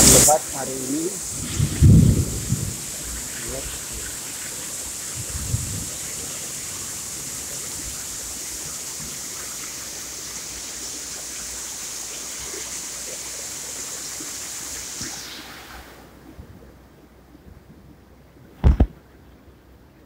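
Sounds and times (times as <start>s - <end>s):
heavy rain on roof and leaves: 0.0s - 15.8s.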